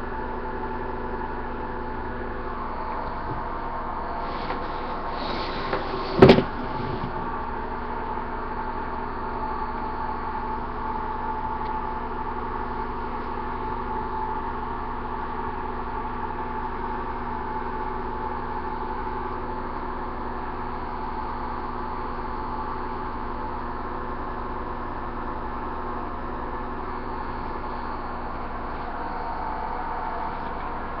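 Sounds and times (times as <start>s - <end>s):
steady machine hum: 0.0s - 31.0s.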